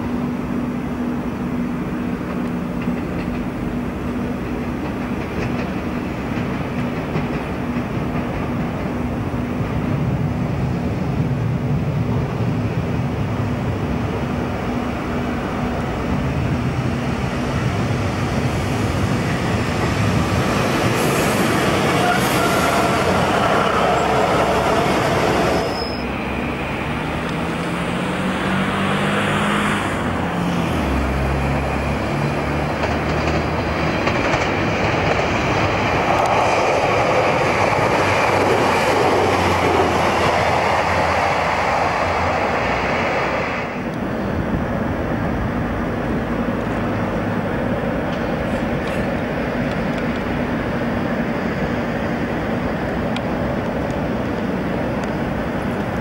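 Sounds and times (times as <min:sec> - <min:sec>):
train rumbling on rails: 0:00.0 - 0:56.0
wheel squeal: 0:25.4 - 0:26.5
diesel engine accelerating: 0:26.1 - 0:33.9.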